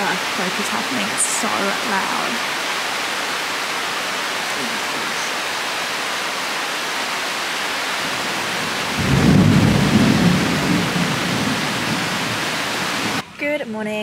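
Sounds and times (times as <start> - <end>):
heavy rain pouring: 0.0 - 13.2
thunder rumbling: 8.0 - 13.2.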